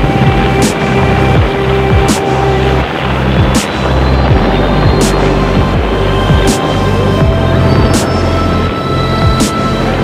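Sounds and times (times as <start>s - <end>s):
background music with steady beat: 0.0s - 10.0s
deep bass drum hits: 2.9s - 8.2s.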